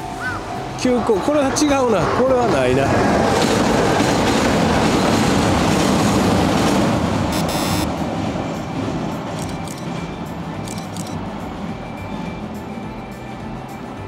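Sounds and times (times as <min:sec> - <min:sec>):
train wheels rumbling on bridge: 0:01.3 - 0:13.3.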